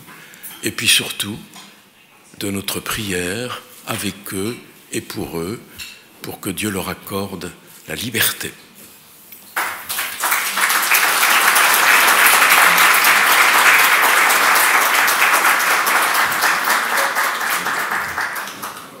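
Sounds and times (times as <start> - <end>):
audience applauding: 9.6 - 19.0.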